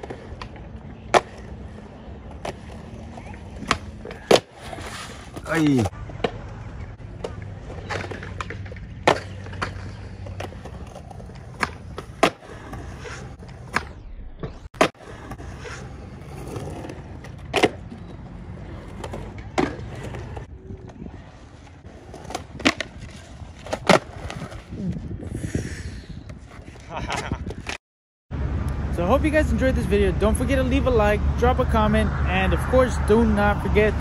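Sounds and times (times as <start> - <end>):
skateboard landings: 0.0 - 24.8
skateboard wheels rolling on concrete: 0.0 - 27.8, 28.4 - 34.0
skateboard sliding on rail: 2.4 - 5.9, 7.3 - 17.8.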